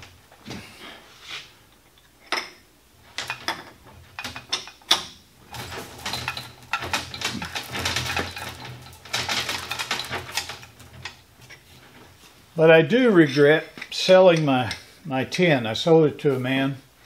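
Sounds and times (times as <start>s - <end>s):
wrench clattering on metal: 1.9s - 2.6s, 3.2s - 11.9s.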